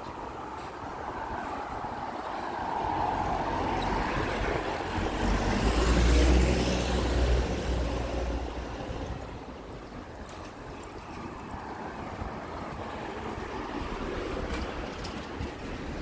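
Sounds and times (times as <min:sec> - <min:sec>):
vehicle passing by: 0:01.4 - 0:09.2.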